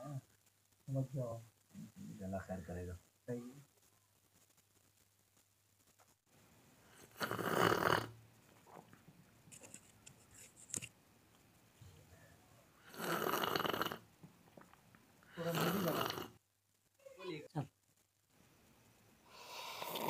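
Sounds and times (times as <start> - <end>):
people slurping tea: 12.9 - 14.0, 15.3 - 16.4, 19.5 - 20.0.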